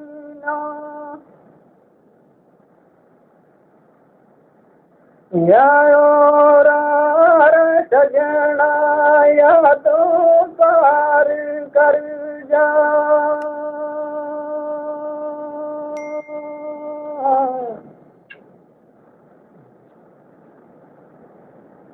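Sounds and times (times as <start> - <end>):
man singing: 0.0 - 1.2, 5.3 - 16.0, 16.6 - 17.9.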